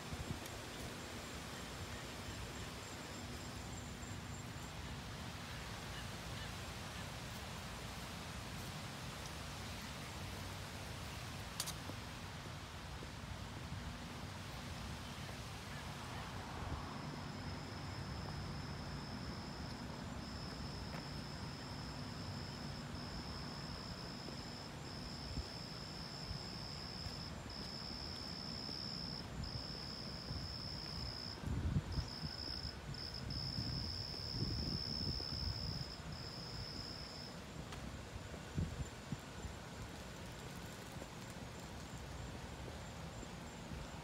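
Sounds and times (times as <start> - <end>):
night insects trilling: 17.0 - 37.4.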